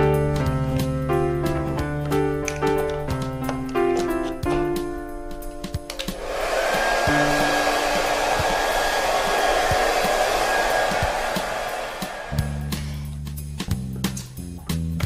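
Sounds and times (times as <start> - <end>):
hair dryer blowing: 6.0 - 12.9.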